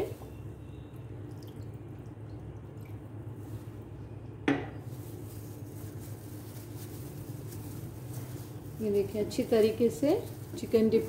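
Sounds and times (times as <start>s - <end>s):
water pouring into glass bowl: 0.8s - 3.5s.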